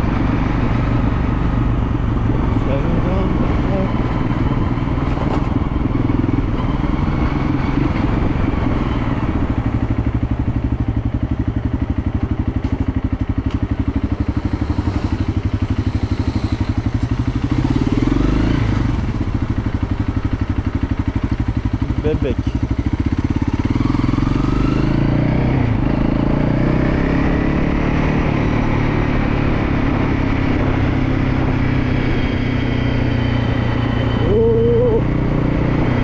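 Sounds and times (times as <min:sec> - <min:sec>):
motorcycle engine running: 0:00.0 - 0:36.0.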